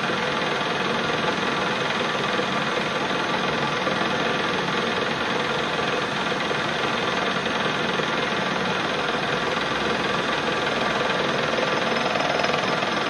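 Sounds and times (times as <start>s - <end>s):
metal lathe running: 0.0s - 13.0s.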